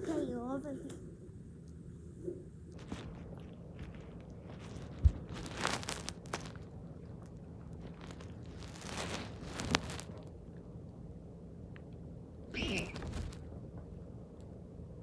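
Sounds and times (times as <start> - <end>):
close crunching and crackling: 2.7 - 10.4, 12.6 - 13.5.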